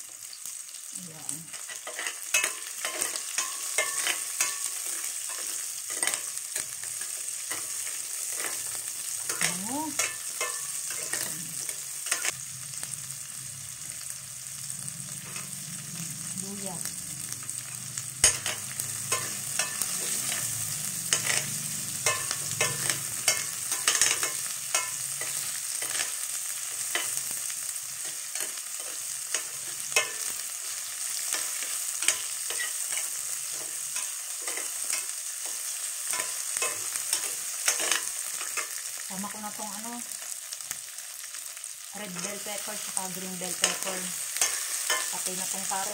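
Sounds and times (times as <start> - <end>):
onion and garlic sizzling: 0.0 - 45.9
metal spatula scraping pan: 1.5 - 12.4, 14.0 - 39.0.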